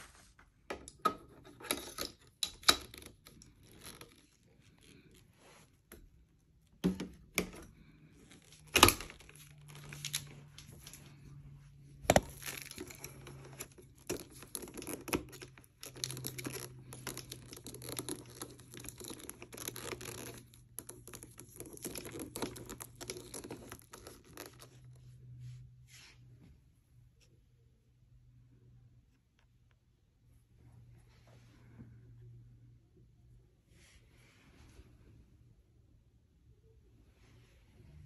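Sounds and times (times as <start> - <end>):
hard plastic parts scraping and rustling: 0.0 - 25.0.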